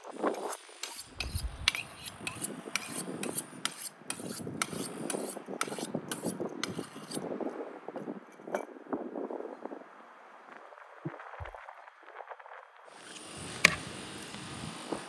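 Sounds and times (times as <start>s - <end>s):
knife scraping on honing steel: 0.2s - 7.3s.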